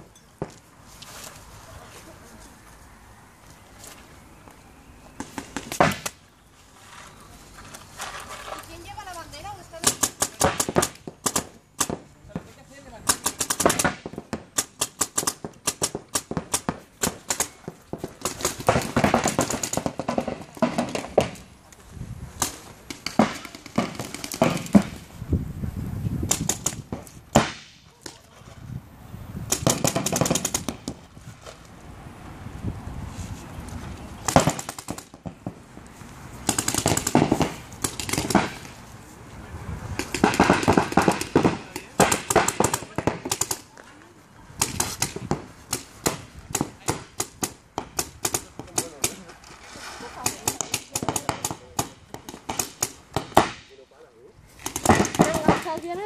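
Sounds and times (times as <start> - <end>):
paintball markers firing: 9.8 - 21.4, 22.4 - 25.0, 26.2 - 28.2, 29.5 - 31.0, 34.2 - 35.6, 36.4 - 38.8, 40.0 - 43.7, 44.6 - 49.2, 50.2 - 53.7, 54.6 - 56.0.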